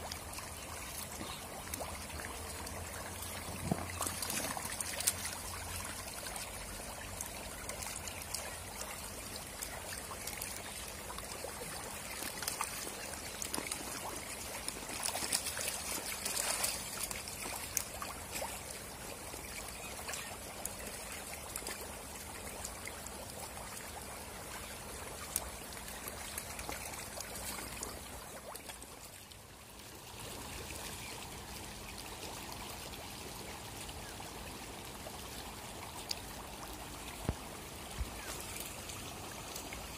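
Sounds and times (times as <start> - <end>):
fish splashing in water: 11.3 - 18.7.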